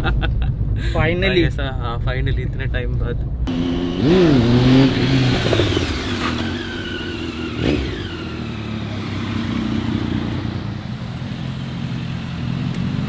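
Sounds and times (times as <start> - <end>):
road traffic: 0.0 - 13.0
vehicle engine running: 3.4 - 13.0.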